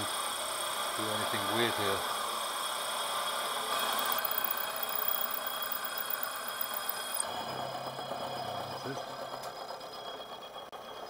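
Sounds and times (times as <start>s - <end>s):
milling machine motor whine: 0.0s - 11.0s
cutter rasping in metal: 3.6s - 7.2s.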